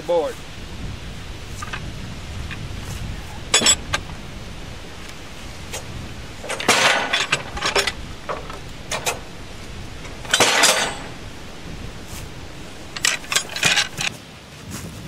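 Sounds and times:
cant hook clinking and scraping: 3.3s - 14.1s
wooden cant knocking on steel bed: 5.7s - 9.3s.

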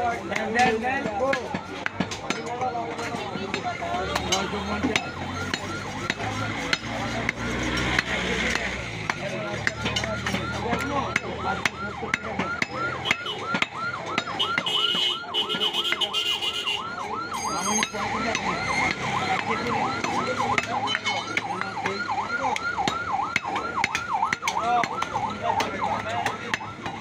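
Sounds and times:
electronic siren warbling: 0.0s - 27.0s
sharp clicks and knocks: 17.8s - 27.0s.

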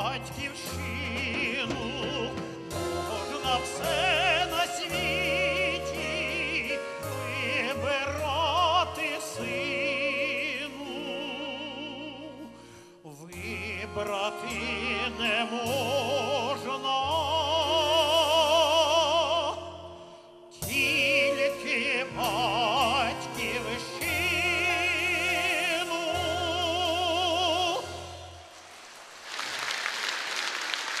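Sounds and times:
man singing with vibrato: 0.0s - 28.5s
band with accordion and drums: 1.6s - 4.3s
applause: 28.6s - 31.0s.

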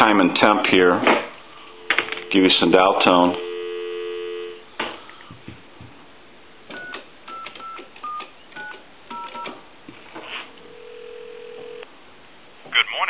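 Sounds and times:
phone line noise: 1.6s - 4.6s, 10.7s - 11.8s
keypad dialing tones: 1.8s - 4.6s, 6.7s - 9.5s.

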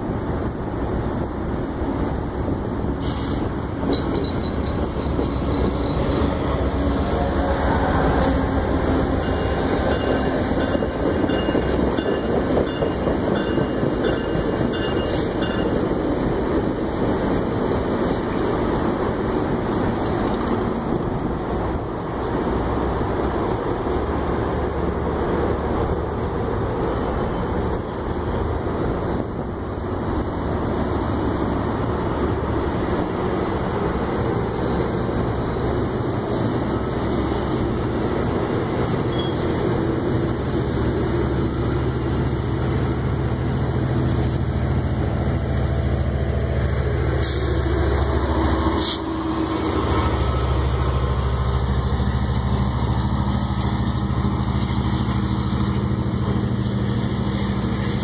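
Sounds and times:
diesel locomotive engine under load: 0.0s - 58.0s
train wheels on rails: 0.0s - 58.0s.

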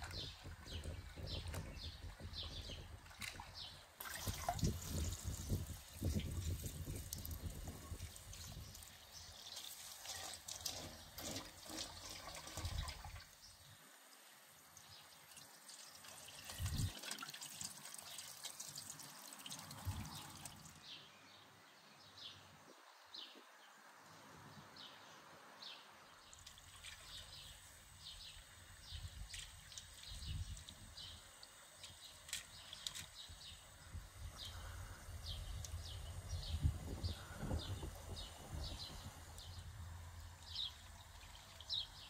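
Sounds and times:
water trickling and dripping: 0.0s - 21.0s, 26.3s - 33.6s, 38.6s - 42.0s
small water splashes: 3.0s - 13.5s, 14.8s - 20.9s.

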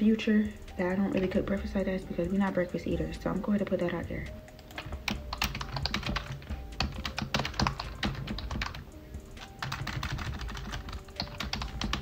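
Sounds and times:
typing on computer keyboard: 4.6s - 8.8s, 9.4s - 12.0s.

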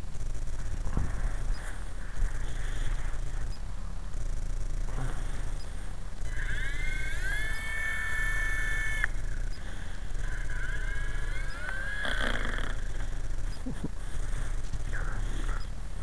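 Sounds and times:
low rumble: 0.0s - 6.9s
rc helicopter motor whining: 6.3s - 13.2s.

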